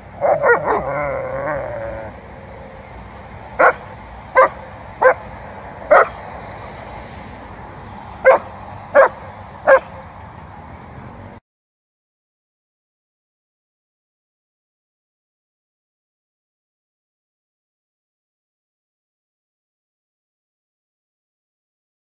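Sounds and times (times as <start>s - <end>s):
dog barking: 0.2s - 1.1s, 3.6s - 5.3s, 5.9s - 6.2s, 8.2s - 10.0s.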